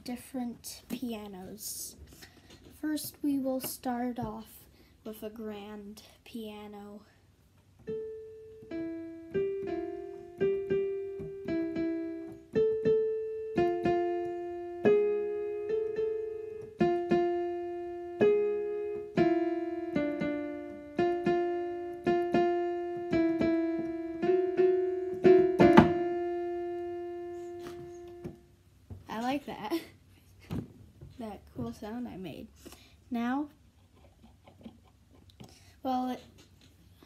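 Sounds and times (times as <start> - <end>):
slow piano tune: 7.8 - 28.9.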